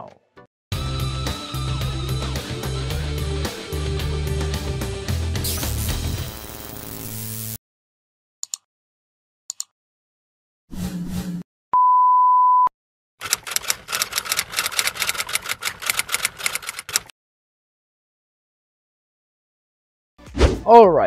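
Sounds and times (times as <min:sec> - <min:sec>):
typewriter key clacking: 0:13.2 - 0:17.1.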